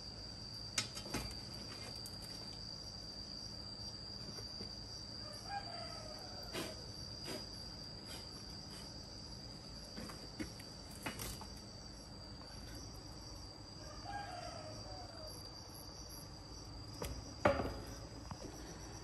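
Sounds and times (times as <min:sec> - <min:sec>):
insect trill: 0:00.0 - 0:19.0
rooster crowing: 0:05.2 - 0:06.8, 0:13.7 - 0:15.6
sharp knocks: 0:17.4 - 0:17.9.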